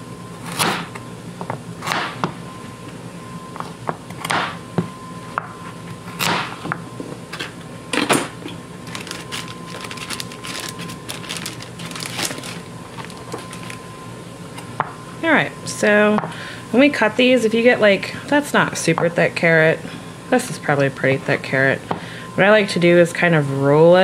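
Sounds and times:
plastic bag crinkling: 0:08.8 - 0:13.9.

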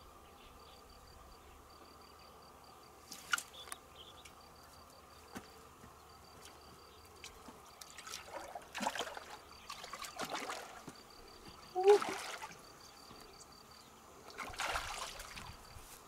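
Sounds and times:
faint insect buzz: 0:00.0 - 0:16.0
fish splashing in water: 0:07.8 - 0:10.9, 0:11.8 - 0:12.6, 0:14.3 - 0:15.5.

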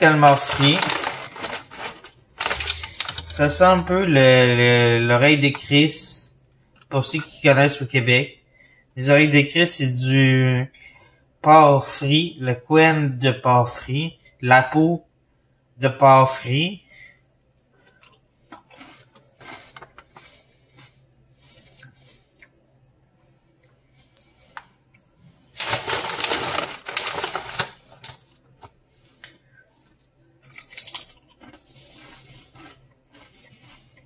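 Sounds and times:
crunching and chewing: 0:00.0 - 0:03.8, 0:17.7 - 0:22.6, 0:23.6 - 0:34.0
foil bag crinkling: 0:00.0 - 0:04.1, 0:18.8 - 0:20.4, 0:25.5 - 0:28.7.

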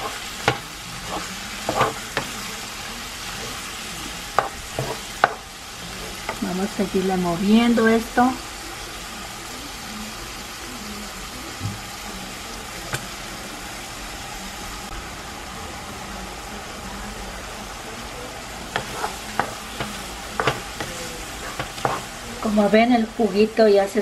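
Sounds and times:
wooden spoon scraping a pan: 0:00.0 - 0:02.4, 0:03.1 - 0:06.5, 0:18.7 - 0:22.6
food sizzling in a frying pan: 0:00.0 - 0:24.0.

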